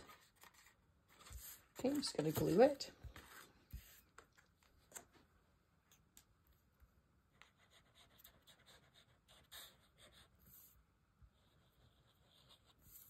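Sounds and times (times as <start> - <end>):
paper rustling: 0.0 - 5.2.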